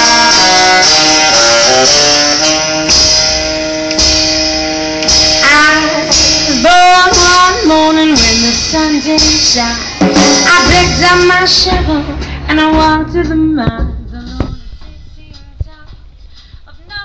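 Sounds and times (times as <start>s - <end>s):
saxophones holding notes: 0.0s - 8.0s
drums: 0.0s - 17.0s
upright bass: 0.0s - 17.0s.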